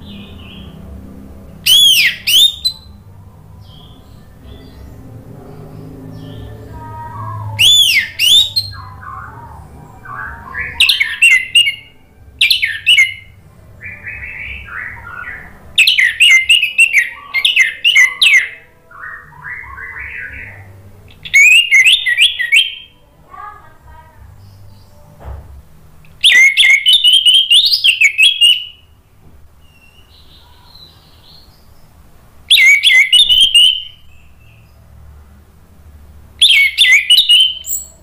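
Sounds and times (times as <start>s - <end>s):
thrush whistling song: 1.6s - 3.0s, 7.3s - 23.0s, 26.2s - 28.9s, 32.5s - 34.7s, 36.4s - 38.0s.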